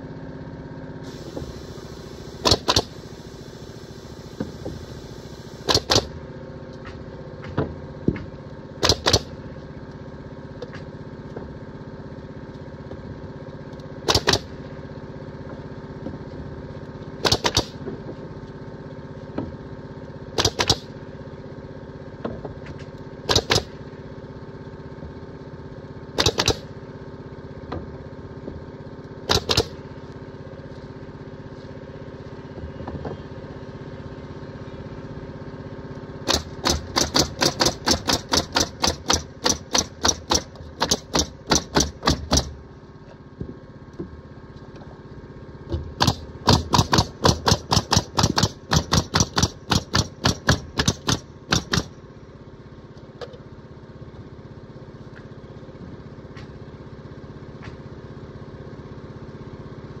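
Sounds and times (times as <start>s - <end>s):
motor hum: 0.0s - 60.0s
nail gun firing into wood: 2.3s - 3.2s, 5.5s - 6.2s, 8.8s - 9.4s, 14.0s - 14.6s, 17.2s - 17.8s, 20.4s - 21.0s, 23.2s - 23.8s, 26.2s - 26.8s, 29.2s - 29.8s, 36.2s - 42.6s, 45.9s - 52.0s.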